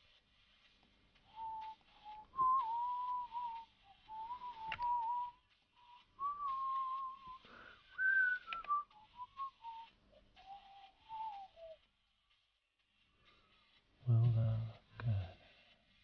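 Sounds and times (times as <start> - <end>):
person whistling a tune: 1.2 - 12.4
sharp clicks: 4.3 - 5.1, 8.3 - 9.0.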